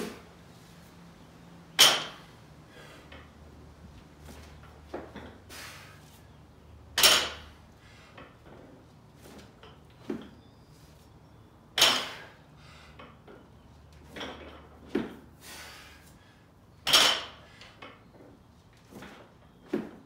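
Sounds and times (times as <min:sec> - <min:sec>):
barbell clanking: 0:01.8 - 0:02.3, 0:07.0 - 0:07.6, 0:11.8 - 0:12.2, 0:16.8 - 0:17.4.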